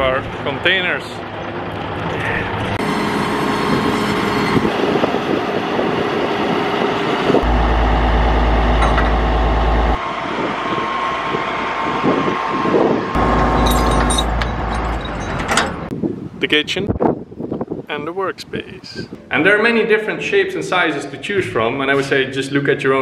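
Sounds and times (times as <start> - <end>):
truck engine running: 0.0 - 15.9
wind rumble on microphone: 4.5 - 8.1, 8.7 - 19.3.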